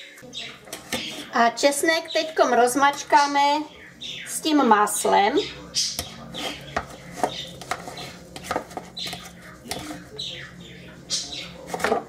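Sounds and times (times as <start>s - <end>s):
fork scraping plastic bowl: 0.7s - 1.4s, 5.9s - 10.3s, 11.4s - 12.0s.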